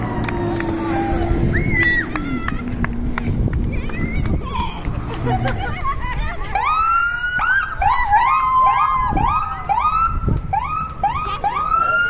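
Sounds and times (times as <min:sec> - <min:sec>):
fire engine siren yelping: 0:00.0 - 0:02.9, 0:06.5 - 0:12.0.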